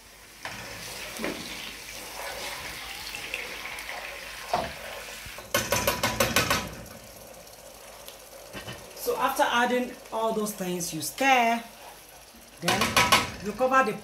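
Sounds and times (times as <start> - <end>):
paste sizzling in oil: 0.0 - 14.0
spoon scraping and knocking pan: 4.4 - 6.8, 12.6 - 13.6.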